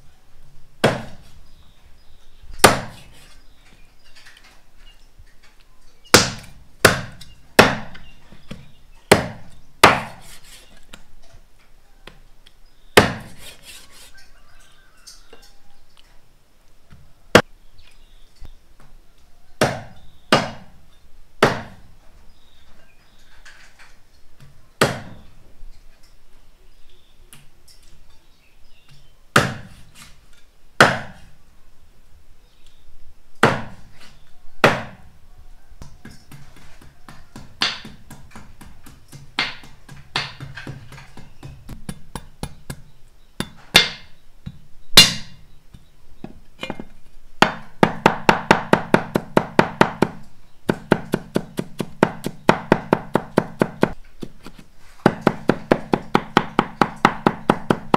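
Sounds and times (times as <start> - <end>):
cleaver chopping on wooden block: 0.8 - 1.2, 2.6 - 3.0, 6.2 - 10.2, 13.0 - 13.4, 19.6 - 20.7, 21.4 - 21.8, 24.8 - 25.2, 29.4 - 29.7, 30.8 - 31.2, 33.4 - 33.8, 34.6 - 35.0, 36.3 - 45.4, 47.4 - 57.9.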